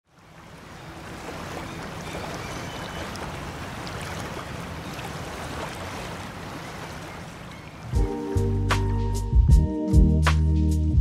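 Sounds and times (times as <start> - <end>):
surf-like washing texture: 0.0 - 8.4.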